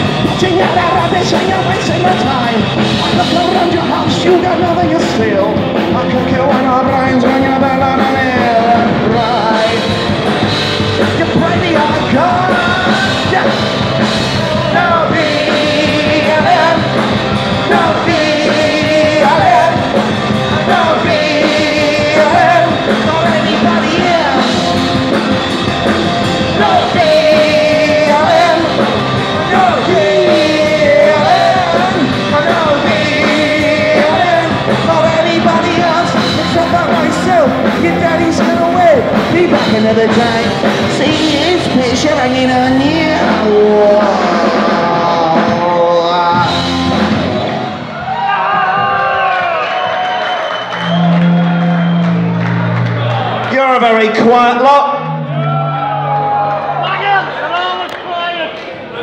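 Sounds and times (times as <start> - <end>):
person singing: 0.0 - 10.1, 11.0 - 25.3, 26.4 - 47.0
electric guitar: 0.0 - 53.5
bass guitar: 0.0 - 58.0
drums: 0.0 - 59.0.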